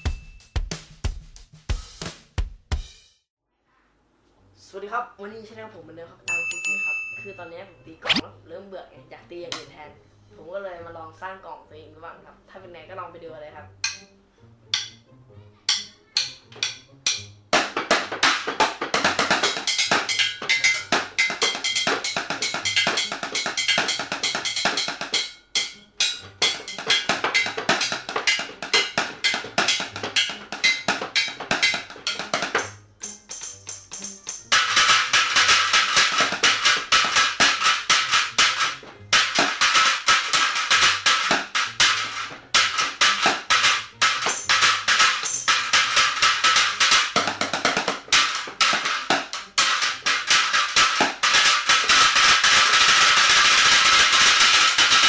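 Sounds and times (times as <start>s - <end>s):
drumsticks on household objects: 13.8s - 55.0s.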